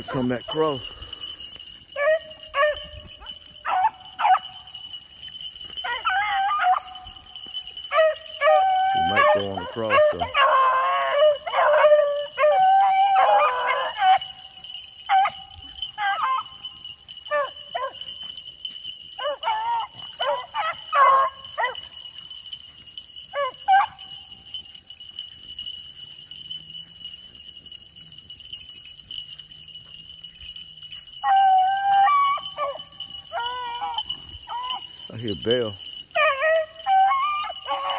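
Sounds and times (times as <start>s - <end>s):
dogs baying: 0.0s - 37.9s.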